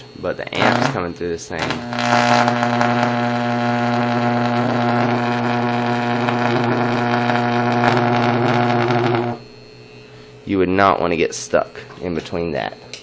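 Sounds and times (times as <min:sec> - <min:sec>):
electric arc buzzing and crackling: 0:00.2 - 0:09.9.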